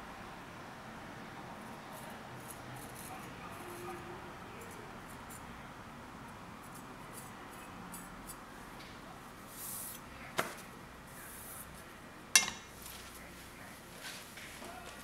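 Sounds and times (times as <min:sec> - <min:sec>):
blade clacking on stone: 0:12.4 - 0:12.7.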